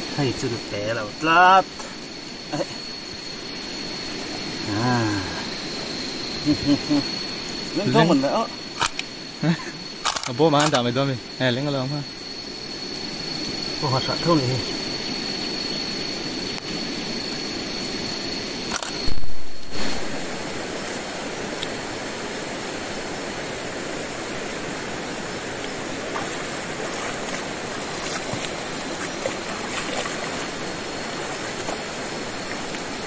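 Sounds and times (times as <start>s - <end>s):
river water flowing: 19.7s - 33.0s.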